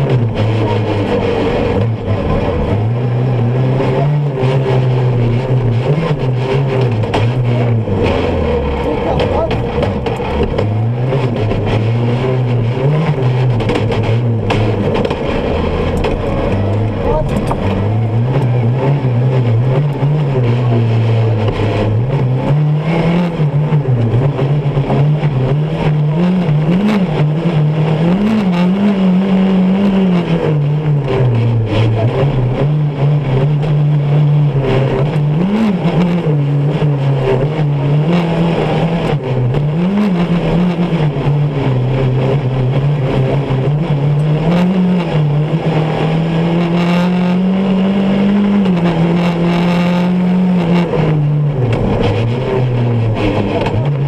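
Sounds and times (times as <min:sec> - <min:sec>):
buggy engine running hard: 0:00.0 - 0:54.0.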